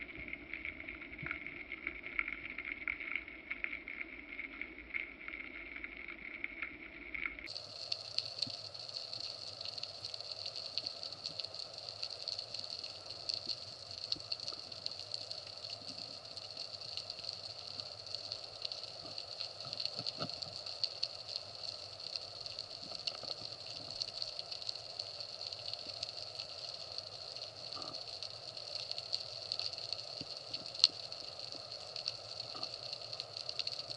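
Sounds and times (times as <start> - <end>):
fine crackling ticks: 0.0 - 33.9.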